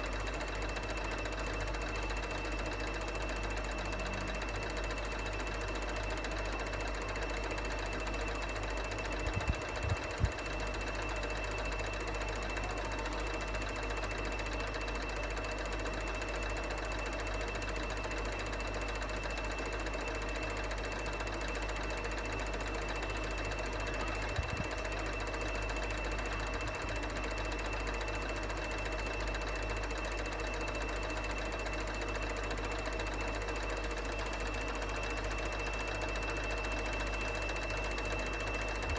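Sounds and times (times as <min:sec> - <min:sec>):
film projector clatter: 0:00.0 - 0:38.9.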